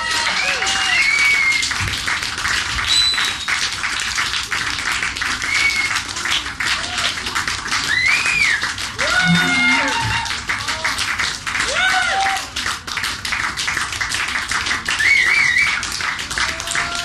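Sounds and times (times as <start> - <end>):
audience applauding: 0.0 - 17.0
whistles: 0.9 - 1.8, 2.8 - 3.7, 5.4 - 6.0, 7.9 - 8.7, 14.9 - 15.9.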